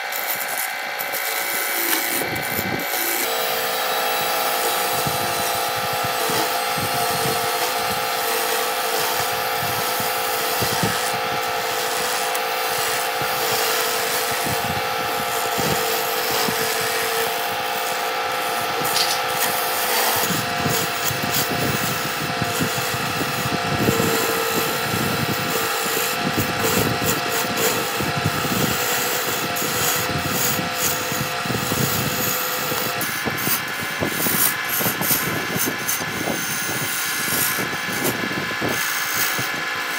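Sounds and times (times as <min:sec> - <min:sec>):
chisel scraping spinning wood: 0:00.0 - 0:39.9
lathe motor whine: 0:00.0 - 0:39.9.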